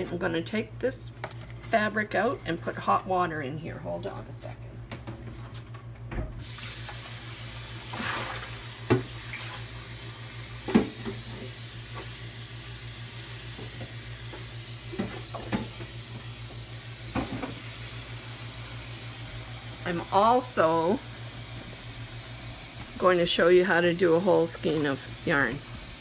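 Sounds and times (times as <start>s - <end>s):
tap water running: 6.4s - 26.0s.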